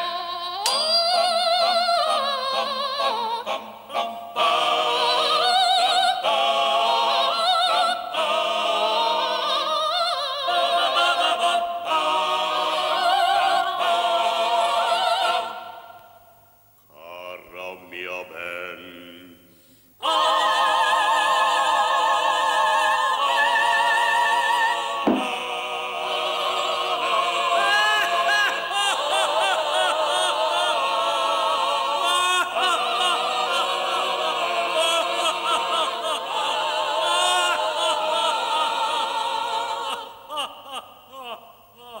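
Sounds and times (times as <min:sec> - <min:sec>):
vibrato voice singing: 0:00.0 - 0:15.9
mixed choir singing operatically: 0:00.0 - 0:16.1, 0:20.0 - 0:42.0
short thud: 0:25.1 - 0:25.4.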